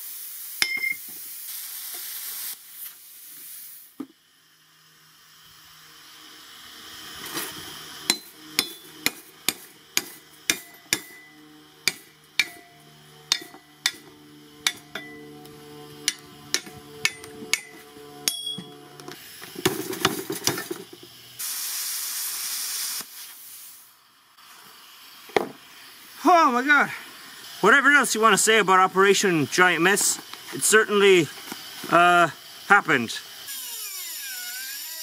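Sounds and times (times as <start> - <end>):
steady hiss: 0.0 - 17.6, 19.0 - 35.0
hammer striking steel plate: 8.1 - 15.3, 16.0 - 18.8.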